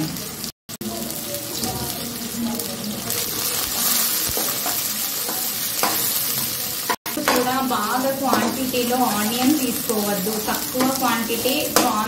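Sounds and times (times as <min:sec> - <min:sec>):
food sizzling in hot oil: 0:00.0 - 0:12.0
spatula stirring in metal pan: 0:03.1 - 0:12.0.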